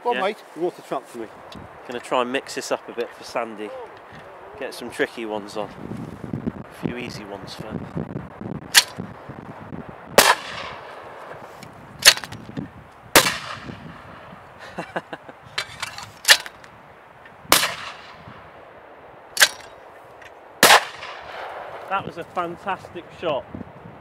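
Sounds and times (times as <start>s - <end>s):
clay trap spring snapping: 8.7s - 9.0s, 12.0s - 12.4s, 15.6s - 16.6s, 19.4s - 19.8s
shotgun shot with echo: 10.2s - 10.9s, 13.2s - 13.8s, 17.5s - 18.3s, 20.6s - 21.9s.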